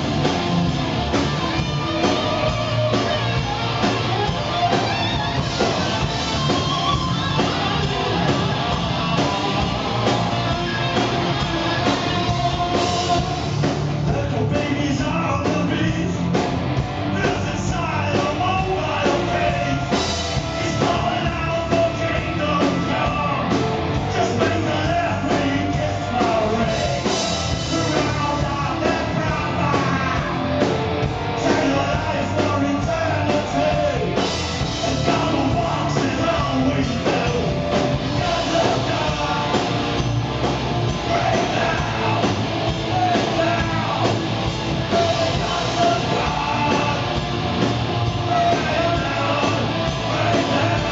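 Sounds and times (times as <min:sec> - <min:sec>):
bass guitar: 0:00.0 - 0:50.9
drum kit: 0:00.0 - 0:50.9
electric guitar: 0:00.0 - 0:50.9
man singing into microphone: 0:14.1 - 0:16.2, 0:17.1 - 0:30.4, 0:31.4 - 0:34.2, 0:34.8 - 0:39.6, 0:41.1 - 0:44.1, 0:44.8 - 0:47.2, 0:48.2 - 0:50.9.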